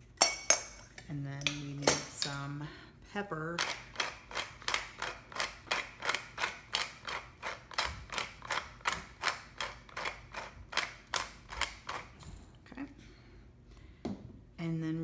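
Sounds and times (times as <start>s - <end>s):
pepper mill grinding: 3.6s - 12.2s.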